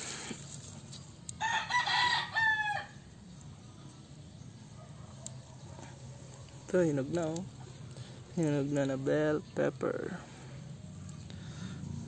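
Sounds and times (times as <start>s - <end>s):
rooster crowing: 1.4s - 3.1s.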